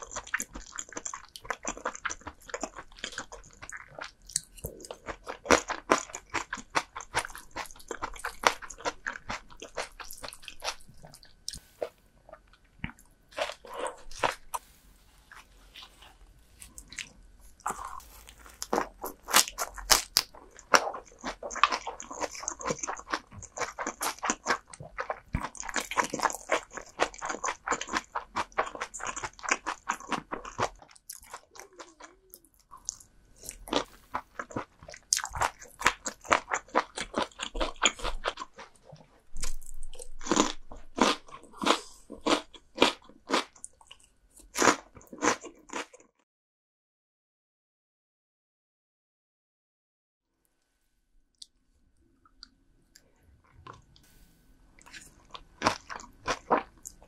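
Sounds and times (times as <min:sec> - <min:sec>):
person chewing crunchy food: 0:00.0 - 0:46.1, 0:54.8 - 0:57.0.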